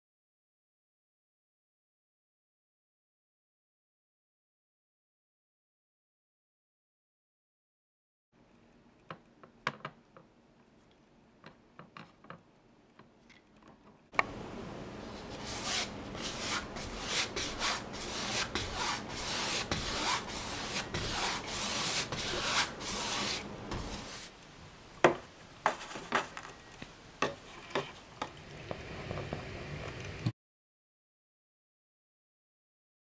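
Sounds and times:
paintbrush scrubbing canvas: 0:15.1 - 0:24.3
painting knife scraping canvas: 0:15.1 - 0:24.4.

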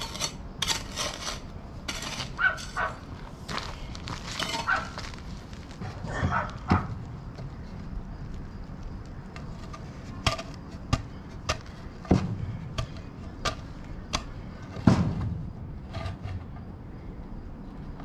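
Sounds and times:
heavy thud: 0:12.0 - 0:13.0, 0:14.7 - 0:15.6.

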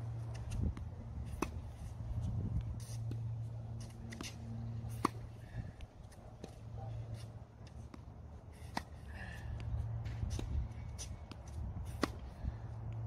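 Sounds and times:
tennis ball bouncing: 0:00.3 - 0:01.8, 0:02.8 - 0:12.4
racket striking tennis ball: 0:01.3 - 0:01.7, 0:03.8 - 0:05.4, 0:10.1 - 0:12.4.

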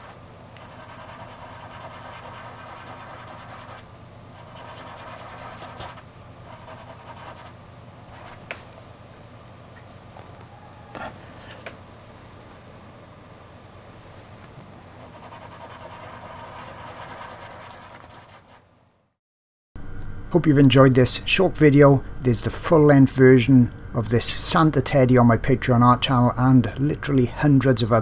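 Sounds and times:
fingers rubbing pastel on paper: 0:00.0 - 0:03.8, 0:04.4 - 0:07.5, 0:15.0 - 0:18.6.

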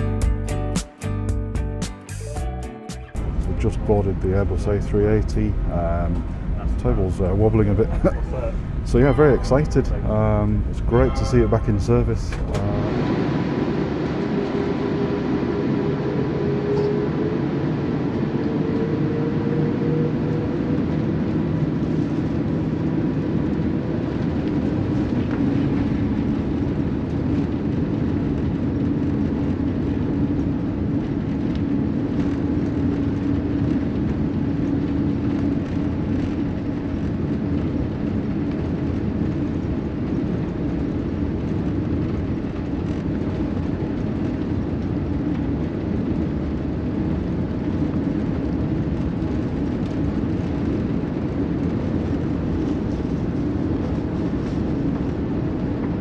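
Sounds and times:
aircraft cabin engine rumble: 0:03.1 - 0:56.0
faint engine tones: 0:03.2 - 0:26.9.

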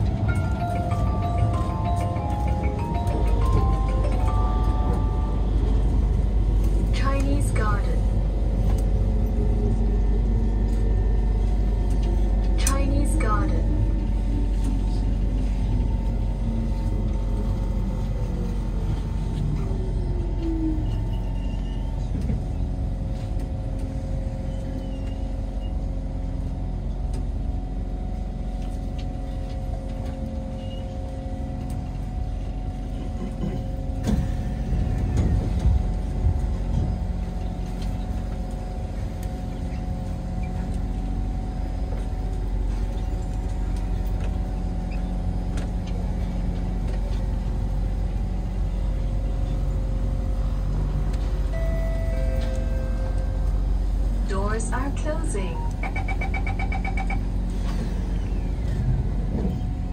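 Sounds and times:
train interior rumble: 0:00.0 - 0:59.9.

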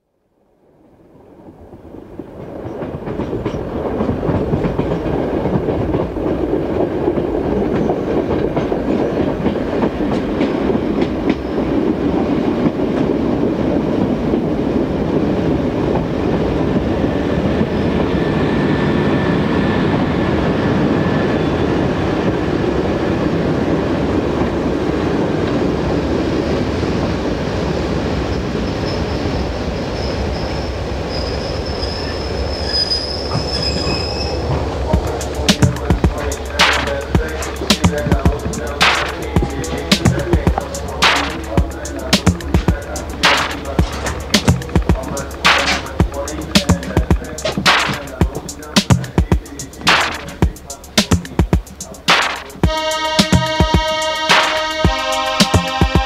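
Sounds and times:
thin high tones: 0:33.8 - 0:56.0
rushing rumbling electronic noise: 0:34.6 - 0:56.0.

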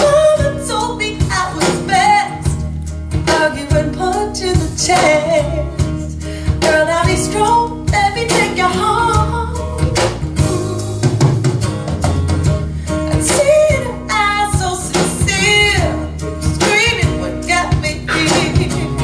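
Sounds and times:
song over loudspeakers: 0:16.6 - 0:19.0.

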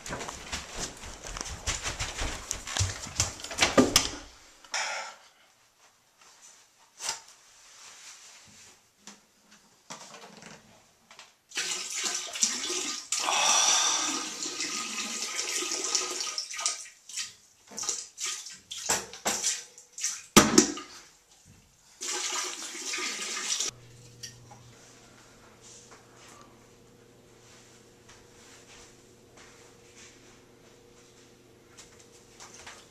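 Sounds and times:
water splashing into toilet bowl: 0:11.5 - 0:21.1, 0:22.0 - 0:23.8.

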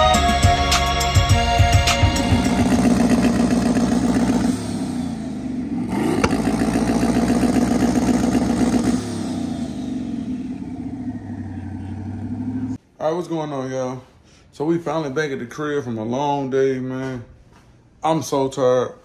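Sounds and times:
pickup engine revving: 0:01.8 - 0:12.8.

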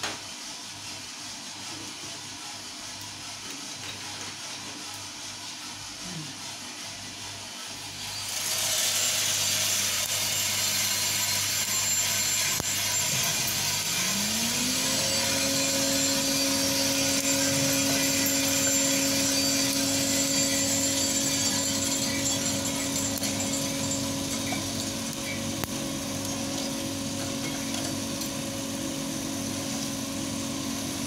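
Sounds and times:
coffee beans pouring rattle: 0:00.2 - 0:31.0
stirring arms churning beans: 0:00.2 - 0:31.0
motor hum: 0:07.7 - 0:31.0.

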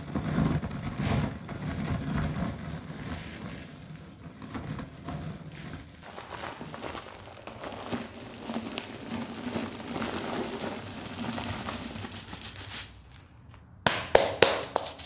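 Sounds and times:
powder crunching and pouring: 0:00.2 - 0:13.7, 0:14.3 - 0:15.0
gloved hands clapping: 0:13.8 - 0:15.0.

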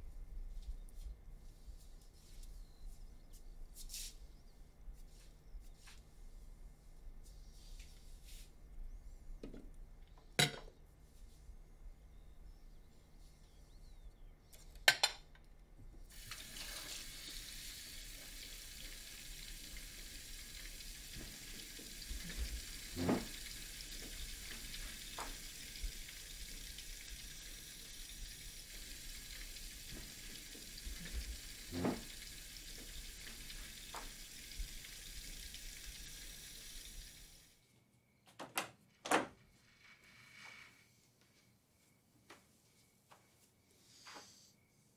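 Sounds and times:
dishes clinking: 0:10.4 - 0:10.7
tap running into sink: 0:18.3 - 0:27.4, 0:29.3 - 0:35.6.

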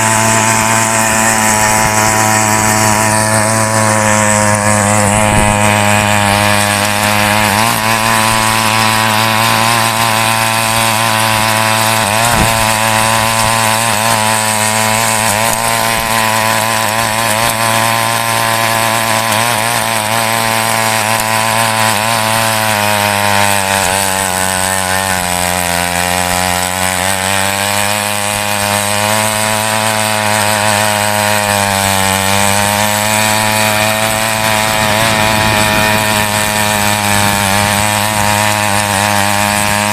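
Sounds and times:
small petrol engine running: 0:00.0 - 0:39.9
tines digging through soil: 0:00.0 - 0:39.9.

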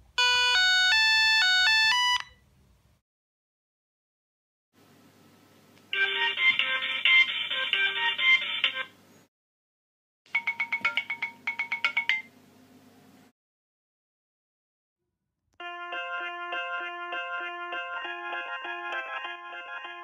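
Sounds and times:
electronic phone melody: 0:00.2 - 0:02.3, 0:05.9 - 0:08.9, 0:10.3 - 0:12.3, 0:15.6 - 0:20.0.

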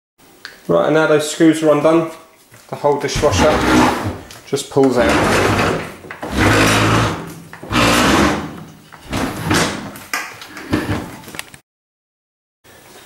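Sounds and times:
dishwasher scraping as it slides: 0:03.1 - 0:04.3, 0:04.9 - 0:09.9.

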